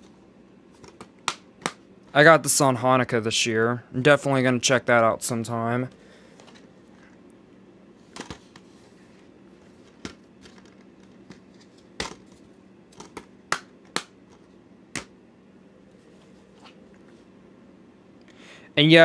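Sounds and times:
faint steady hum: 0.0 - 19.0
plastic cases clicking and tapping: 9.8 - 12.3, 12.9 - 15.1.

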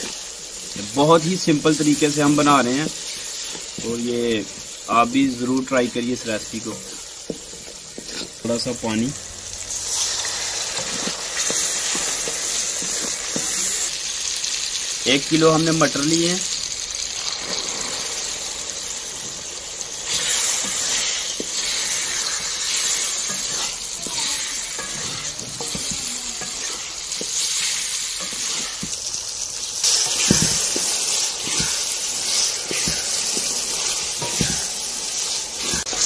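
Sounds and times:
wooden spatula stirring: 0.0 - 9.2, 9.8 - 13.8, 20.1 - 29.1, 29.8 - 36.0
peas sizzling in oil: 0.0 - 36.0.

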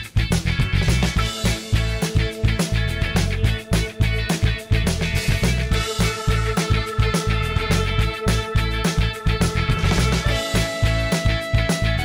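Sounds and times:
background music with steady beat: 0.0 - 12.0
bass: 0.0 - 12.0
plucked guitar: 0.0 - 12.0.

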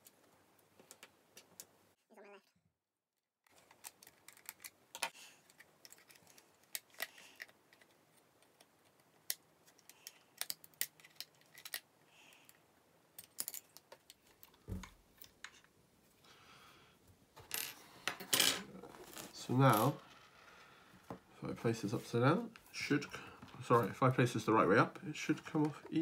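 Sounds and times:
hands handling plastic body: 3.5 - 11.9.

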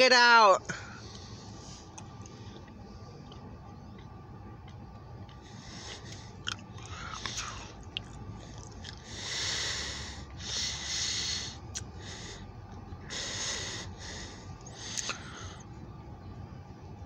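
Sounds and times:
low steady hum: 0.0 - 17.0
person breathing close to microphone: 5.4 - 7.8, 8.4 - 15.7.

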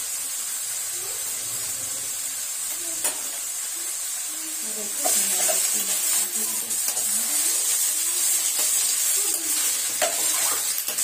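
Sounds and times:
vegetables sizzling in oil: 0.0 - 11.0
spatula scraping pan: 5.0 - 11.0.

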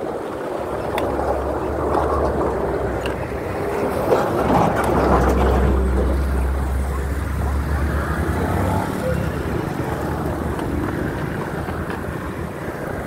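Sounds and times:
bike road noise: 0.0 - 13.0
passing motor traffic: 0.0 - 13.0
truck engine hum: 0.0 - 13.0
wind noise on microphone: 0.0 - 13.0.

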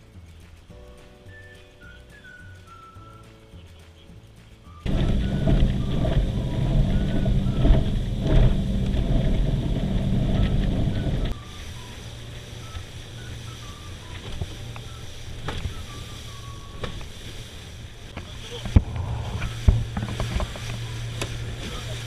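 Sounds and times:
water noise: 0.0 - 22.0
wind: 0.0 - 22.0
outboard motor running: 4.9 - 22.0.

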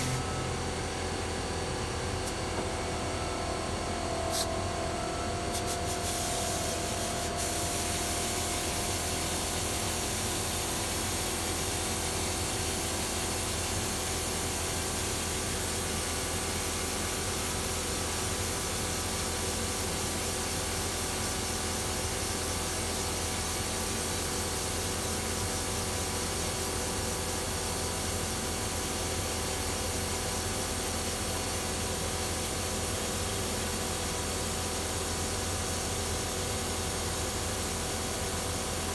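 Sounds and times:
spray gun hissing: 5.5 - 10.6.

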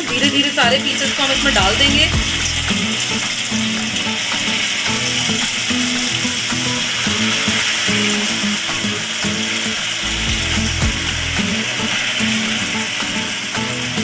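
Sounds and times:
background music with held notes: 0.0 - 14.0
oil sizzling in deep-frying: 0.0 - 14.0.

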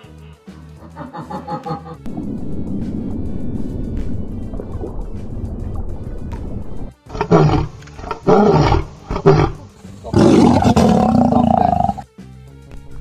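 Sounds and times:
music: 0.0 - 13.0
low rumbling noise: 2.1 - 9.2
lion roaring: 7.1 - 12.0.

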